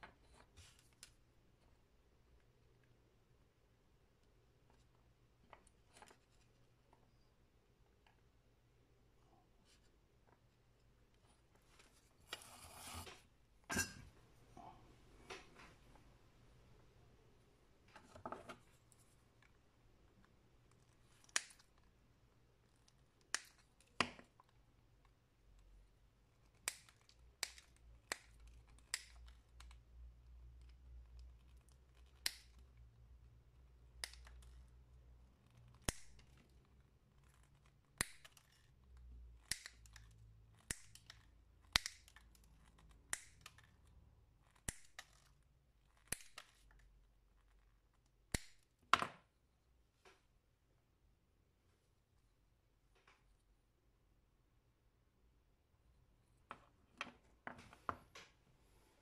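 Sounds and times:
faint handling noise: 0:09.0 - 0:16.2, 0:17.8 - 0:21.9
side cutters snipping wire: 0:35.8 - 0:36.4, 0:40.6 - 0:42.2, 0:43.0 - 0:43.6, 0:44.5 - 0:45.2, 0:48.3 - 0:48.6.

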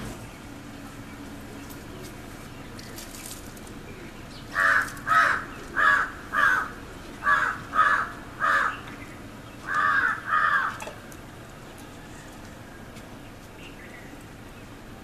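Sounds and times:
crow cawing: 0:04.5 - 0:08.9, 0:09.6 - 0:10.8.

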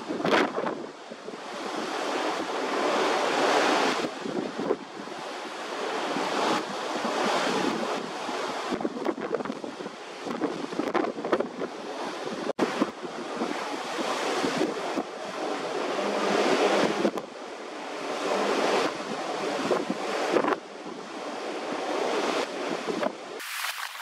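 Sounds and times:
wind on microphone: 0:00.0 - 0:17.2, 0:18.0 - 0:24.0
sea waves washing: 0:23.4 - 0:24.0.

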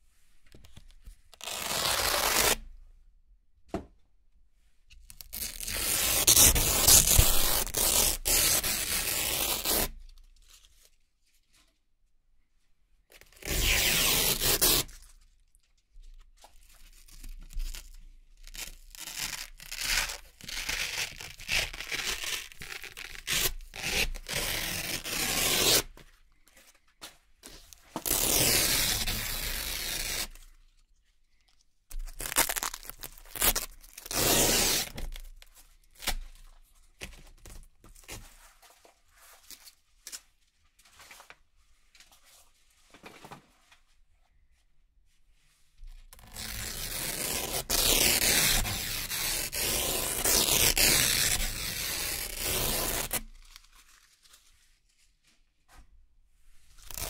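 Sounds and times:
velcro strips ripping: 0:01.4 - 0:02.6, 0:05.1 - 0:10.0, 0:13.2 - 0:15.1, 0:17.7 - 0:25.9, 0:27.4 - 0:30.5, 0:31.9 - 0:35.4, 0:46.2 - 0:54.4, 0:56.8 - 0:57.0.

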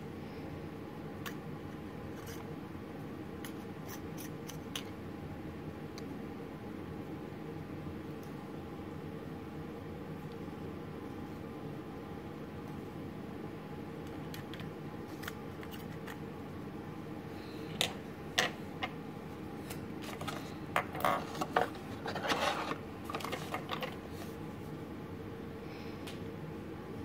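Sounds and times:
paper rustling: 0:19.6 - 0:24.4.

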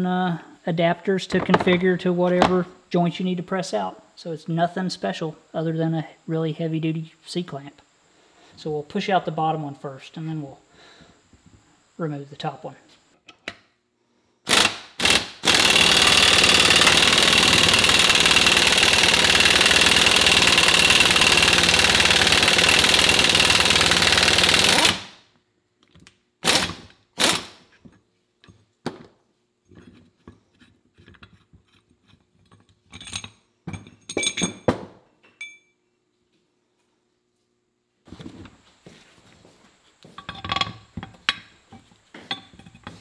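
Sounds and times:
impact wrench hammering: 0:14.5 - 0:25.1.

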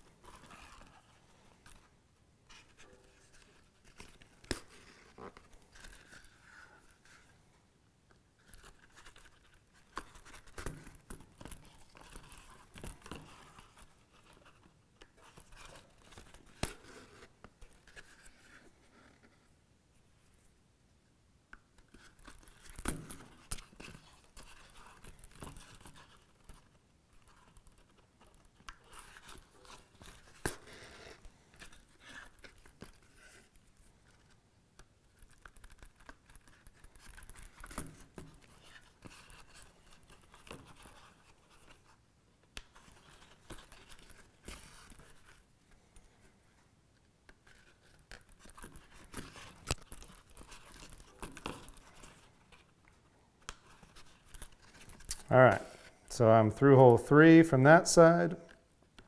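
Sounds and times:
leather rustling: 0:00.0 - 0:01.9, 0:47.4 - 0:56.0
thread pulled through leather: 0:00.0 - 0:07.5, 0:21.5 - 0:56.0.

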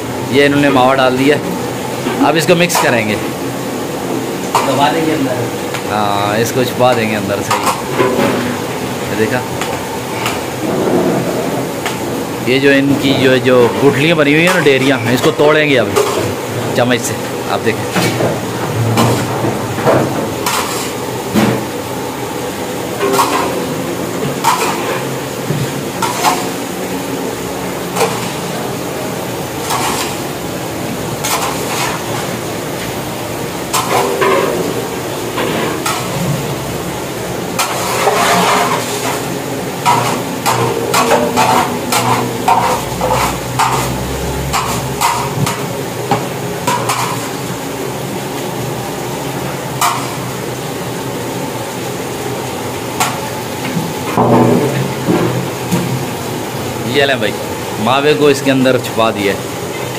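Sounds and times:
steady background hum: 0:00.0 - 0:59.9
metal spoon scraping a metal pan: 0:20.4 - 0:21.0, 0:37.6 - 0:39.2, 0:39.8 - 0:45.6.

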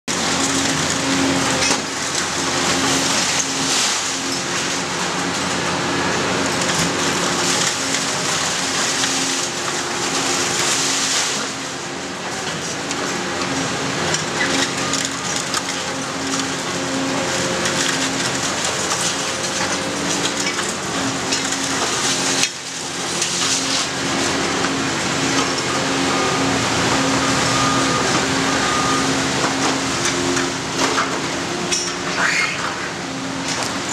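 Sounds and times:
excavator diesel engine running: 0:00.1 - 0:33.9
concrete and metal debris crunching: 0:06.1 - 0:25.7.

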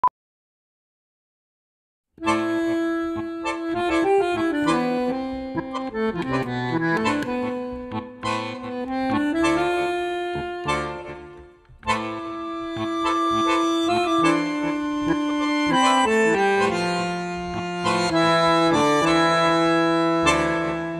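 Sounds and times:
slow instrumental melody: 0:02.2 - 0:20.9.

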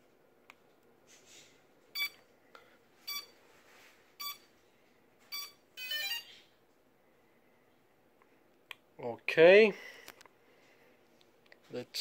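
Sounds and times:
short electronic beeps: 0:02.0 - 0:02.2, 0:03.1 - 0:03.3, 0:04.2 - 0:04.4, 0:05.3 - 0:06.4.

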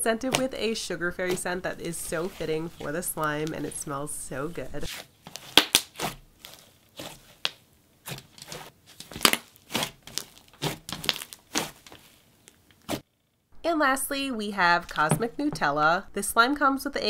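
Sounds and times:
slime squeezed with sizzles and pops: 0:04.9 - 0:12.0.

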